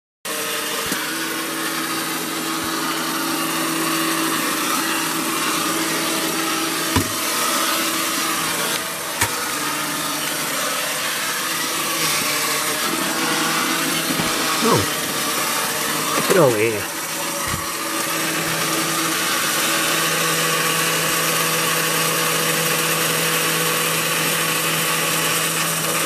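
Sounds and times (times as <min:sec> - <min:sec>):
toy bus motor whirring: 0:00.3 - 0:26.0
sharp knocks: 0:07.0 - 0:07.2.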